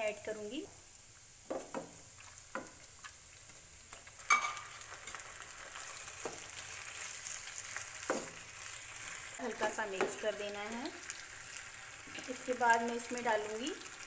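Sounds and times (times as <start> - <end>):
pan sizzling: 0.0 - 14.0
spatula knocking pan: 1.5 - 2.8, 8.0 - 8.4.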